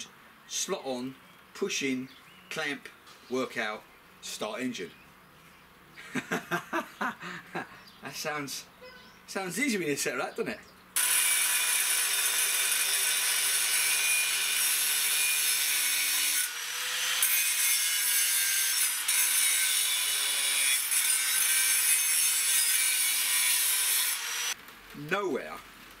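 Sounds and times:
angle grinder grinding metal: 11.0s - 24.6s.

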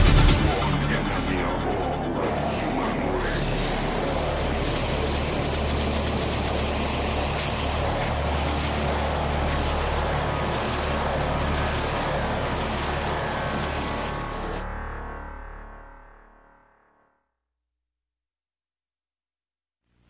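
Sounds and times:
dense rushing roar: 0.0s - 14.6s
low droning hum: 0.0s - 15.6s.

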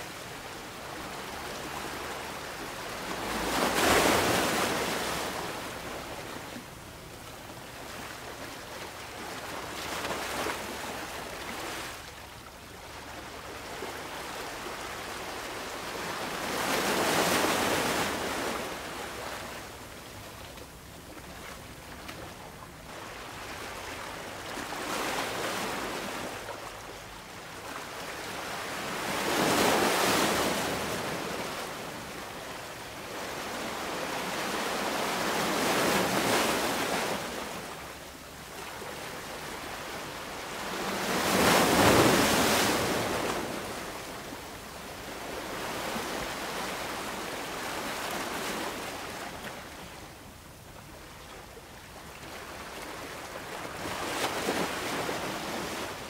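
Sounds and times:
ocean waves breaking: 0.0s - 6.6s, 38.6s - 44.3s.

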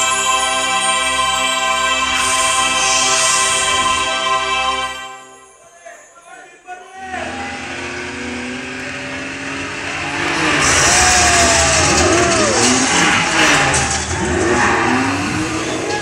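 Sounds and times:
high gliding squeals: 6.9s - 16.0s
car engines running: 7.0s - 16.0s.

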